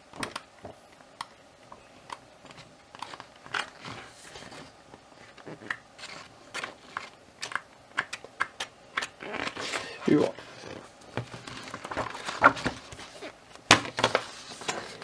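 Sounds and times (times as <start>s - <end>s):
pages flicking and rustling: 10.6s - 15.0s.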